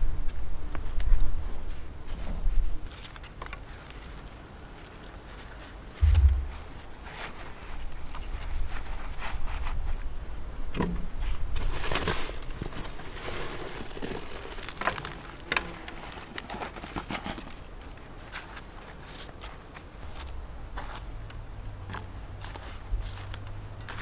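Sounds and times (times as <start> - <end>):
soil crumbling and rustling: 2.1 - 10.1, 11.2 - 24.0.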